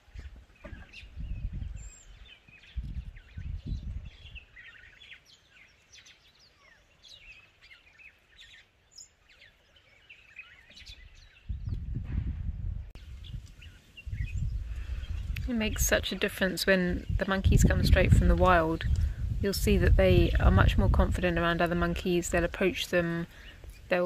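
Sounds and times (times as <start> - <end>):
wind rumble on microphone: 0.0 - 5.0, 10.7 - 24.0
birds chirping and calling: 0.0 - 12.0, 13.0 - 24.0.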